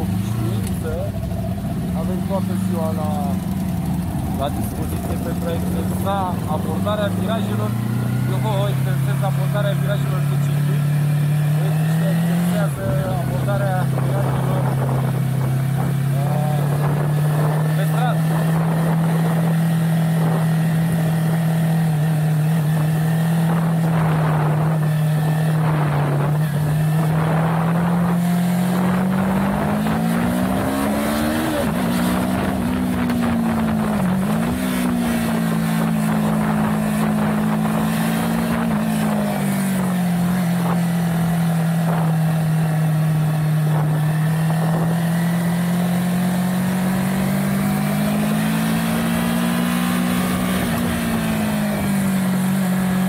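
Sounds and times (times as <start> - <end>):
motorcycle engine revving: 0.0 - 53.0
wind rush over microphone: 25.5 - 39.9.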